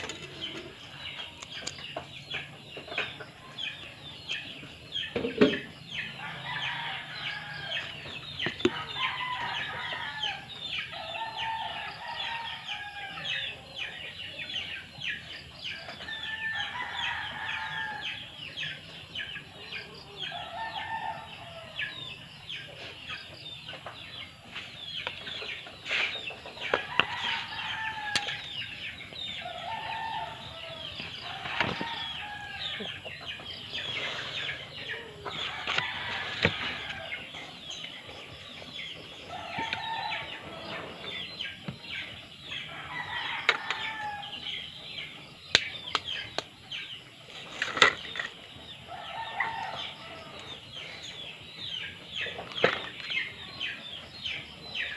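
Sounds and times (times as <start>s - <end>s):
chickens clucking: 17.3s - 54.9s.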